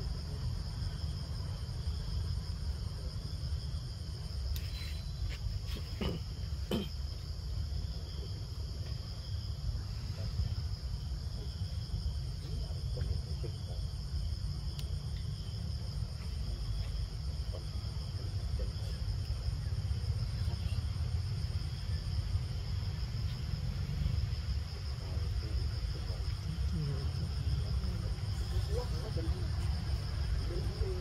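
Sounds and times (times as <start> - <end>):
insects chorus: 0.0 - 31.0.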